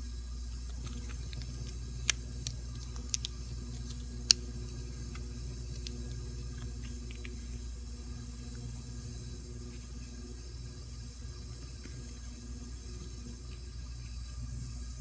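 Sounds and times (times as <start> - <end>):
steady low hum: 0.0 - 15.0
small sharp clicks: 0.7 - 4.5.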